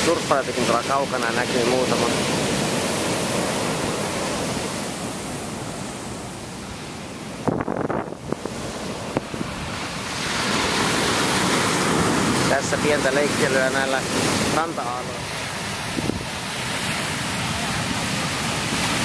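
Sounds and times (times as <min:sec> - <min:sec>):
ocean surf breaking: 0:00.0 - 0:19.0
wind on microphone: 0:07.1 - 0:12.6, 0:13.5 - 0:19.0.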